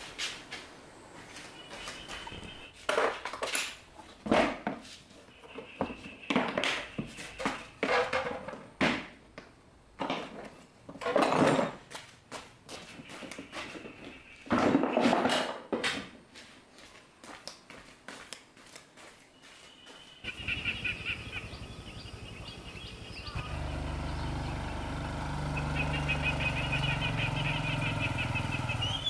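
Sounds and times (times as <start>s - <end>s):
tools and parts clattering: 2.8s - 4.8s, 5.8s - 9.1s, 10.0s - 11.9s, 14.5s - 16.1s.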